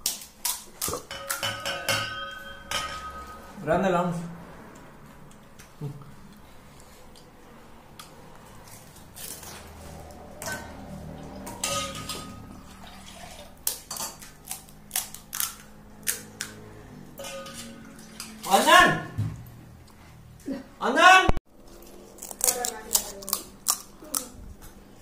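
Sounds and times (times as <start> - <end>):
metal dishes clinking: 0.9 - 3.6, 10.3 - 12.9, 17.1 - 18.7.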